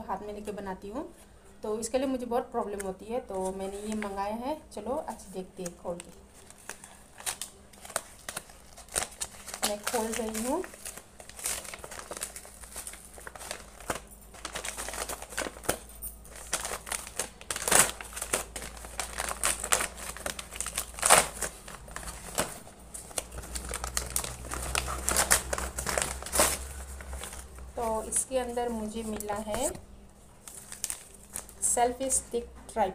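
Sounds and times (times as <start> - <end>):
paper bag tearing and crumpling: 6.4 - 29.8, 30.4 - 31.7.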